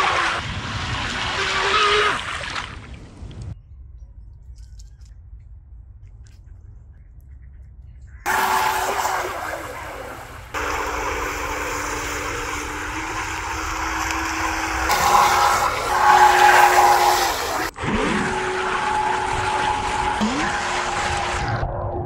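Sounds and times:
spraying water hiss: 8.3 - 17.7
high electric motor whine: 8.3 - 21.8.

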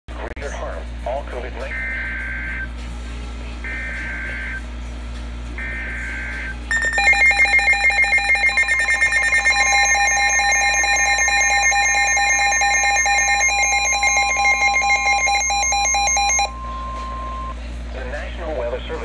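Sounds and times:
rapid electronic alarm beeping: 1.6 - 2.7, 3.6 - 4.6, 5.6 - 17.6.

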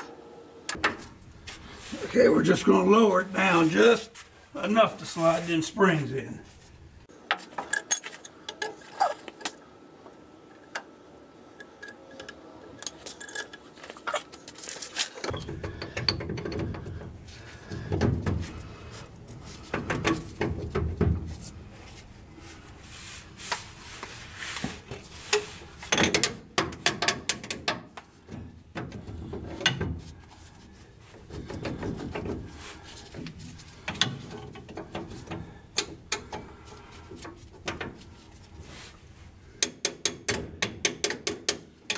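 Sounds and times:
metal knocks and clanks: 15.2 - 18.9, 19.6 - 21.4.

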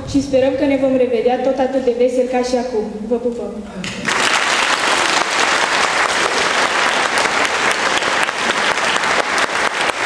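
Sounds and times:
crowd applauding: 4.0 - 10.0.

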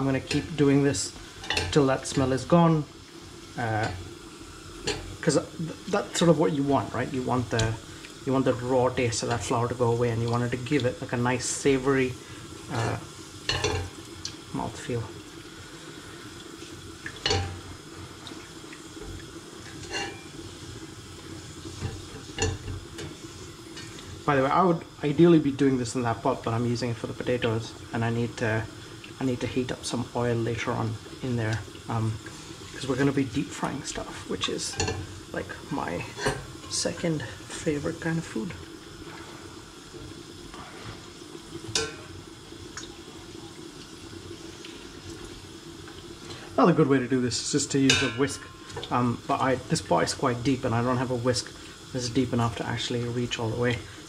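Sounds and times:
flour and oil sizzling: 0.0 - 54.0
spoon scraping pot: 19.7 - 20.4.

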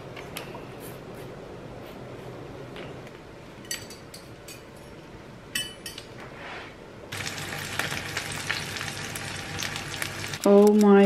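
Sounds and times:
tableware clinking on a counter: 3.6 - 6.2
food sizzling in a pan: 7.1 - 10.8.

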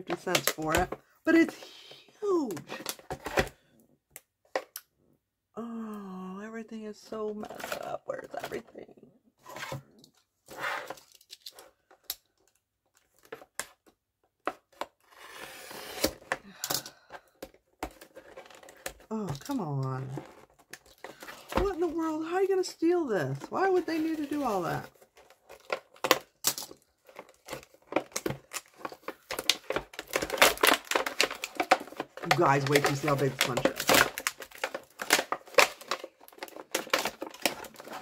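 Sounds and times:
plastic packaging clicking and crackling: 0.0 - 1.5, 10.9 - 15.0, 16.2 - 22.1, 23.4 - 38.0
plastic packaging clicks and taps: 25.2 - 38.0.

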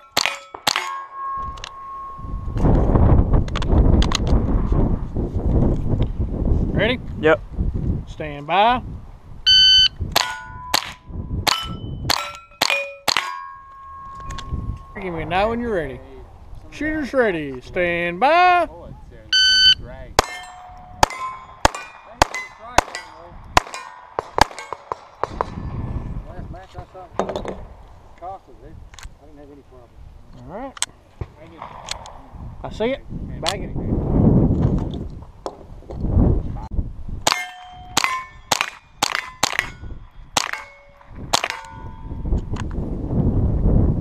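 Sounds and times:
steel plate target ringing: 0.0 - 3.4, 9.5 - 15.5, 19.4 - 25.3, 37.2 - 42.3
pistol shots: 20.2 - 25.6, 40.4 - 41.8.

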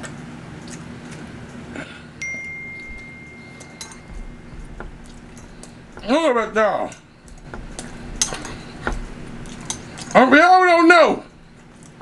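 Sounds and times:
high notification chime: 2.2 - 4.5.

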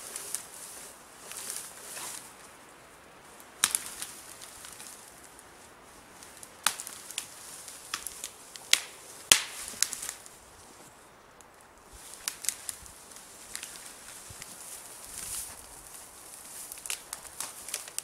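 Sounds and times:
dry twigs snapping and cracking: 3.4 - 5.4, 6.2 - 10.4, 11.4 - 18.0.

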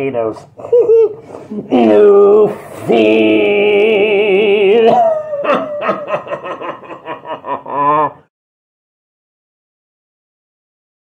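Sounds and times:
man laughing: 0.6 - 2.2, 2.9 - 8.3
man holding a wavering word: 0.6 - 5.9.

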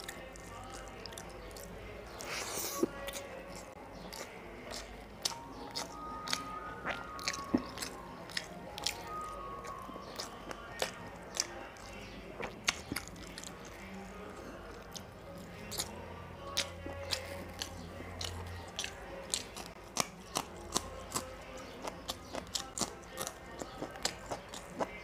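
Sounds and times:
mouth clicks and smacks: 0.0 - 13.9
close chewing: 0.0 - 25.0.

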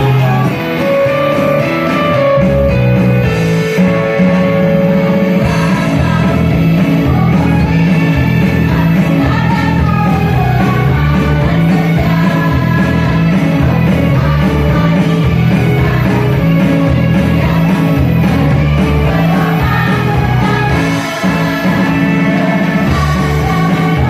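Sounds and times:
amplified backing music: 0.0 - 24.0
women singing together: 5.4 - 24.0.

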